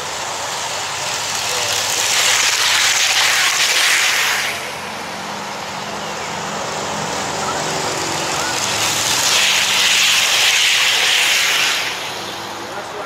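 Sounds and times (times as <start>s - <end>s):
model train passing: 0.0s - 13.0s.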